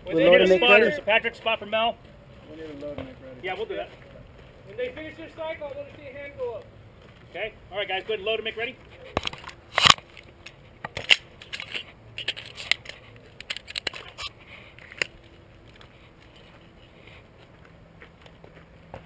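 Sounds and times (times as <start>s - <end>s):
handgun being loaded clicks: 9.2s - 14.3s.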